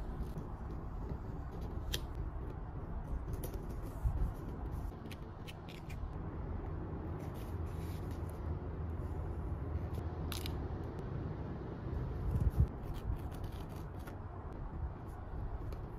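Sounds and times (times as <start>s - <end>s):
low background rumble: 0.0s - 15.9s.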